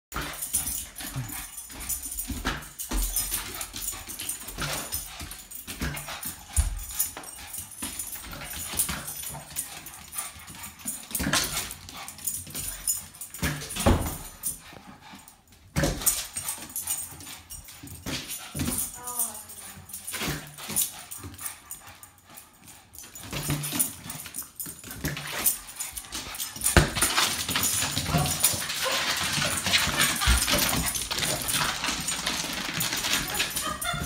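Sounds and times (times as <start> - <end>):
dog whimpering: 18.9 - 20.0.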